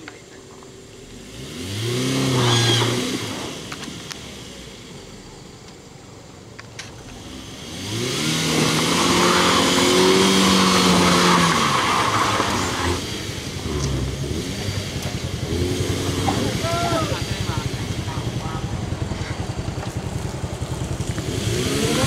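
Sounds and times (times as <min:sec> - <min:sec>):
car engine revving: 0:00.0 - 0:22.0
wheels spinning in mud: 0:07.9 - 0:22.0.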